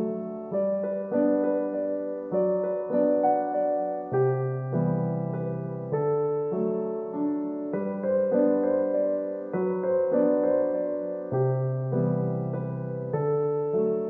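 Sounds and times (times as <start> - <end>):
piano notes and chords: 0.0 - 14.0.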